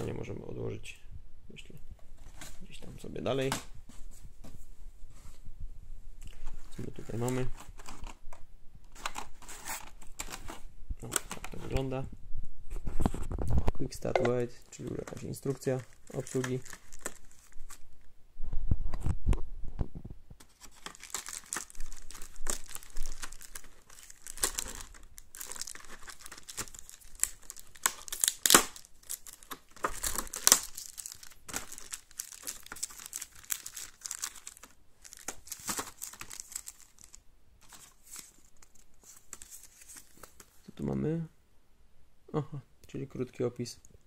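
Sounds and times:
plastic packaging crinkling: 6.3s - 12.0s, 13.2s - 18.0s, 20.4s - 40.5s.

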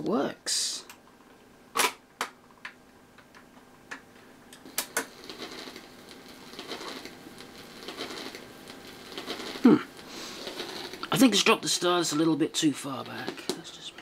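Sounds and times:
stylus running in record groove: 4.6s - 14.0s.

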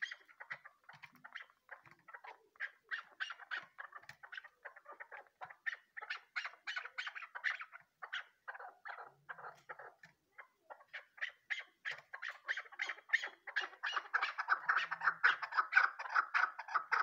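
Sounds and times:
partridge clucking calls: 0.0s - 17.0s.

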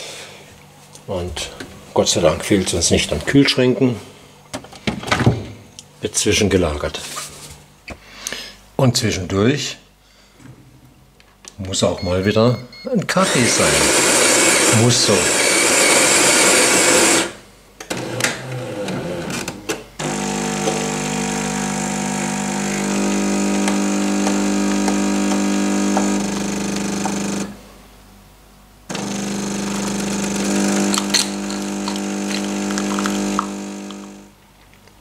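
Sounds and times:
coffee machine pump humming: 13.3s - 17.3s, 20.0s - 27.6s, 28.9s - 34.4s.

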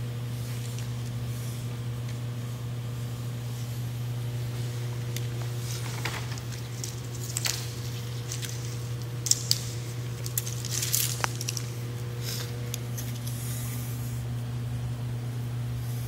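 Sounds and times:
steady low hum: 0.0s - 16.0s
tape rustling: 5.0s - 13.4s.

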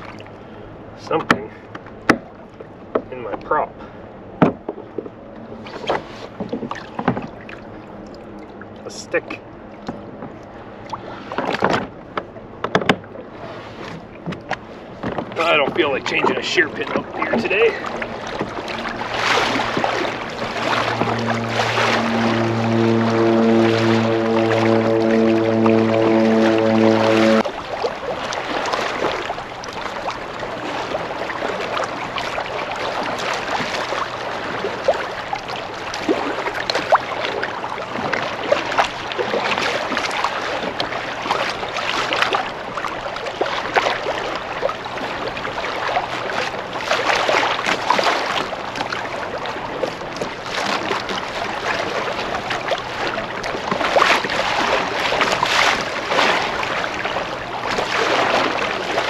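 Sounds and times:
water slapping against kayak hull: 1.0s - 59.0s
wind on microphone: 17.0s - 27.7s.

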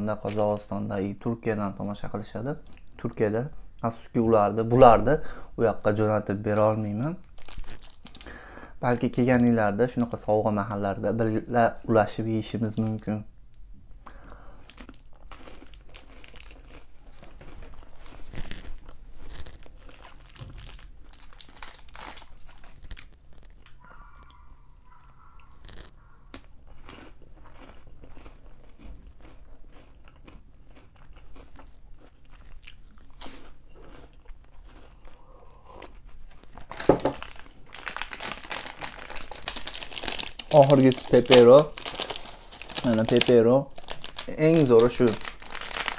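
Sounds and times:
snack wrapper crinkling: 7.0s - 8.4s, 14.1s - 23.8s, 25.4s - 35.2s, 35.8s - 45.9s
person chewing crunchy snack: 7.2s - 8.4s, 14.0s - 45.9s.

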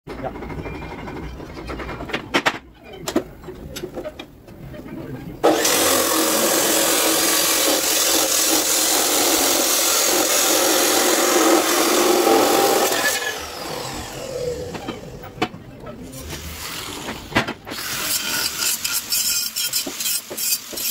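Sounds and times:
chop saw grinding metal: 5.4s - 15.1s, 16.9s - 20.9s.

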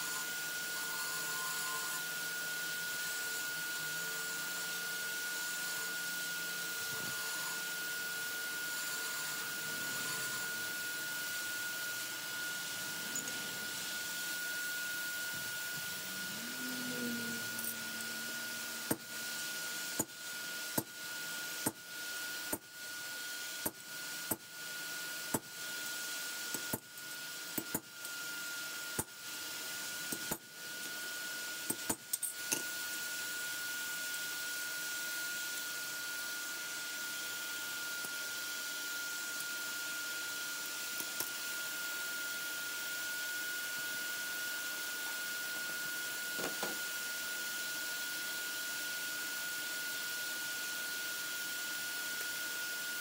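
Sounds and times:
steady hiss with high tone: 9.2s - 20.4s.

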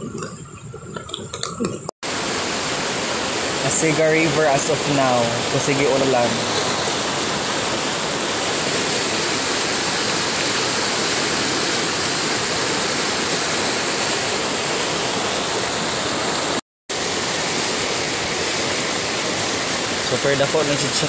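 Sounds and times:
floodwater rushing in river: 0.0s - 21.0s.

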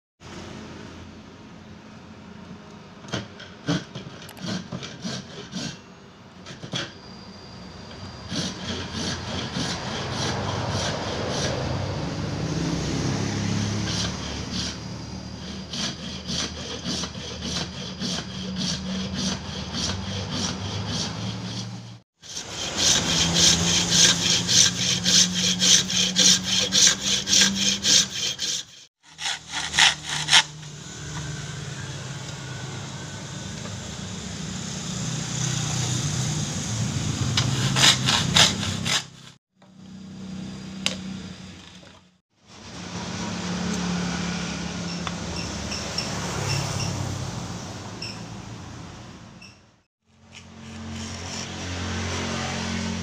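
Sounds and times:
hand saw cutting horn: 3.1s - 7.0s, 8.2s - 31.3s, 37.2s - 39.4s, 50.1s - 53.0s.

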